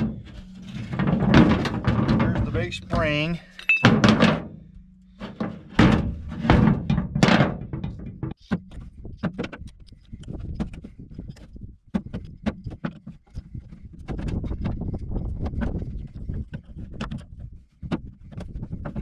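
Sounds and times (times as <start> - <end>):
heavy metal thunks on truck bed: 0.0 - 3.2, 3.8 - 8.6.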